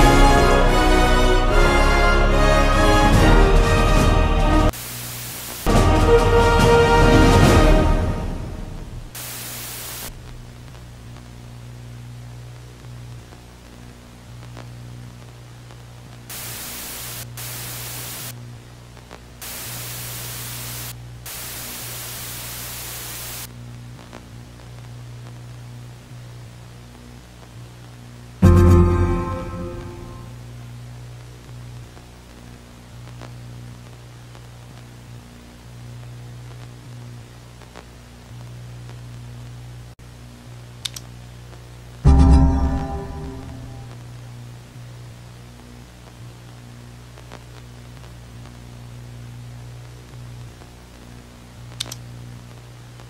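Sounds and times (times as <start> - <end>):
loud static hiss: 4.3 - 53.0
low electrical hum and buzz: 4.7 - 5.8, 7.5 - 53.0
harsh distorted buzzing tone: 4.7 - 6.7, 8.1 - 12.4, 16.2 - 18.5, 19.2 - 23.5, 28.4 - 30.7, 42.0 - 44.4
quick clicks: 51.8 - 52.0.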